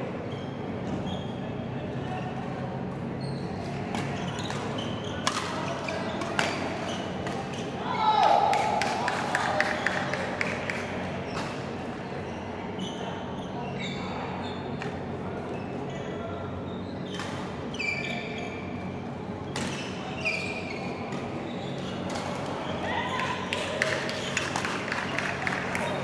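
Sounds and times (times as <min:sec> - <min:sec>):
low hall hum: 0:00.0 - 0:26.0
shoe squeaks on court: 0:00.3 - 0:02.3, 0:03.2 - 0:07.8, 0:15.6 - 0:22.8
rackets hitting shuttlecocks: 0:04.0 - 0:07.5.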